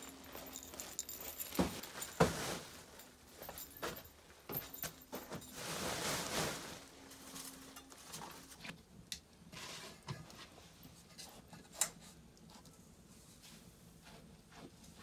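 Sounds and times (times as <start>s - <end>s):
rustling: 0.0s - 8.8s.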